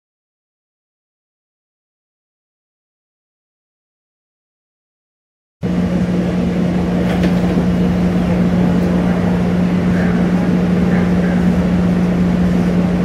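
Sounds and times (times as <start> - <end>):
light rail car humming: 5.6 - 13.0.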